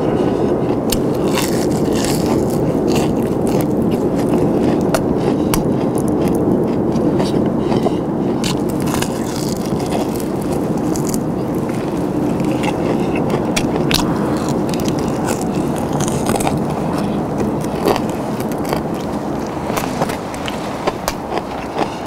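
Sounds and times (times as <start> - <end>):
crunching fried chicken: 0.0 - 22.0
low background rumble: 0.0 - 22.0.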